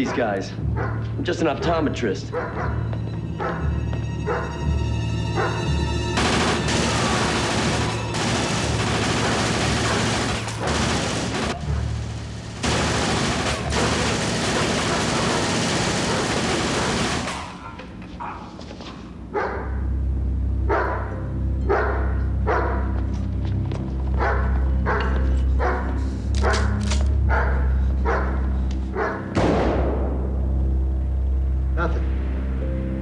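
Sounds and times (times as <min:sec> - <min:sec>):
dog barking: 0:00.0 - 0:04.6, 0:05.4 - 0:05.7, 0:09.8 - 0:10.1, 0:13.7 - 0:19.8, 0:20.7 - 0:23.0, 0:24.2 - 0:29.3
automatic gunfire bursts: 0:06.2 - 0:17.6.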